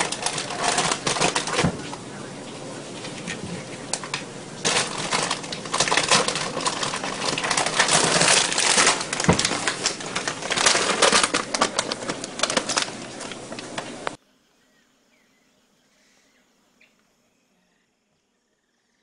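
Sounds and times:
plastic bag crackling and rustling: 0:00.0 - 0:14.2.

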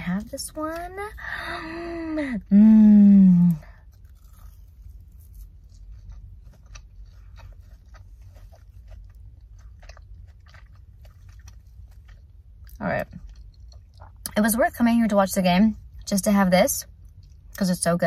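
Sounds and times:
person chewing crunchy food: 0:03.4 - 0:14.4, 0:16.8 - 0:17.6.

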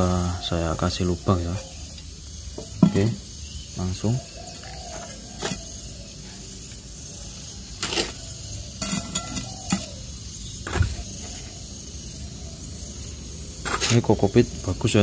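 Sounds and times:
trowel knocking against bowl: 0:02.6 - 0:03.2
trowel scraping dry soil: 0:04.6 - 0:06.8, 0:07.7 - 0:10.0, 0:12.9 - 0:14.3.

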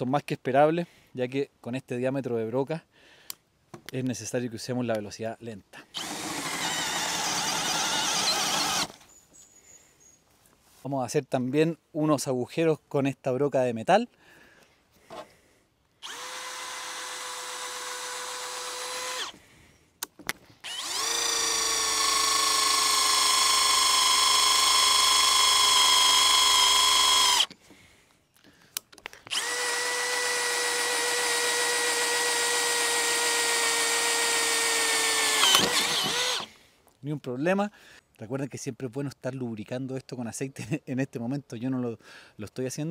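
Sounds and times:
drill clicks: 0:06.0 - 0:09.0, 0:16.0 - 0:19.4, 0:20.0 - 0:27.6, 0:28.7 - 0:36.5
cordless drill whining into metal: 0:06.0 - 0:09.2, 0:16.0 - 0:19.4, 0:20.6 - 0:27.6, 0:29.2 - 0:36.5.

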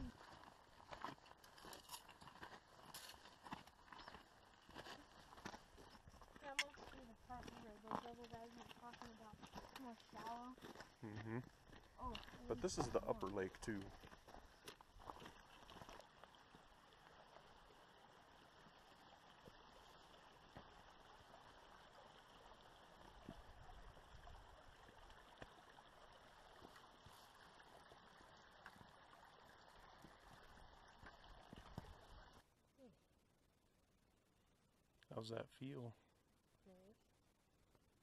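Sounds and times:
faint outdoor ambience hiss: 0:00.0 - 0:38.0.

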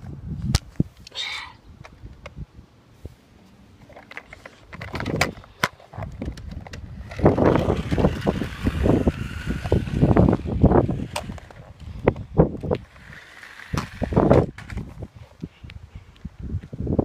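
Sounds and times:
toy car wheels rattling on asphalt: 0:03.8 - 0:15.2
electric motor whining: 0:06.9 - 0:15.0.

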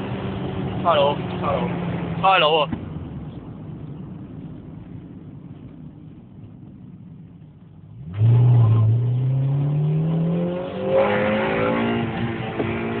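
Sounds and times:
car engine accelerating: 0:07.7 - 0:13.0.

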